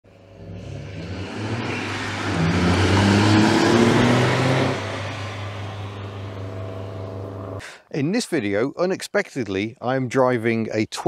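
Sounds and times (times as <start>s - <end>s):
car engine accelerating hard: 0.1s - 7.6s.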